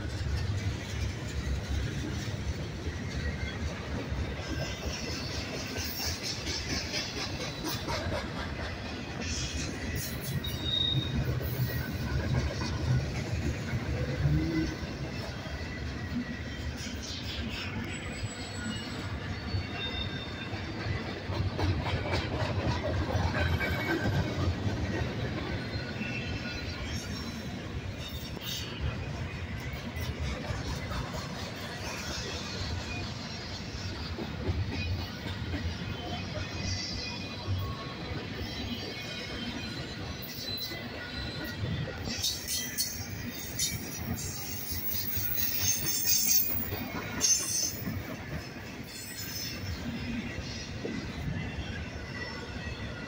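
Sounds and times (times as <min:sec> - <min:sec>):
steel wheels rumbling on rail: 0:00.0 - 0:53.0
faint high wheel squeals: 0:09.4 - 0:12.2, 0:15.5 - 0:21.0, 0:34.7 - 0:53.0
high-pitched wheel squeals: 0:10.1 - 0:11.8.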